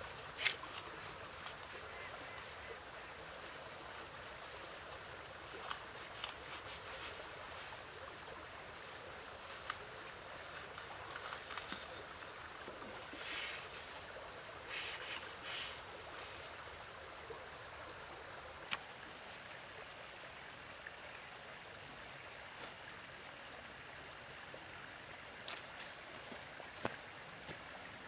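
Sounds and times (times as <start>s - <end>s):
dry straw rustling: 0.0s - 12.2s, 12.8s - 16.4s
outdoor hiss: 0.0s - 28.0s.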